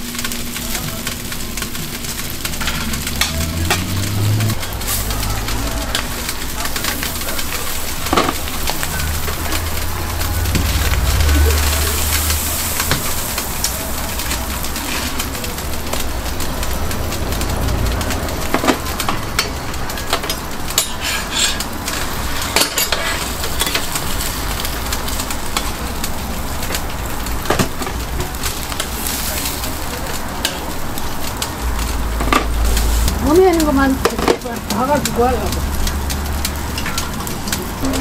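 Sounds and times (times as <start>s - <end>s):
food sizzling in oil: 0.0s - 38.0s
metal utensils clicking on griddle: 0.2s - 38.0s.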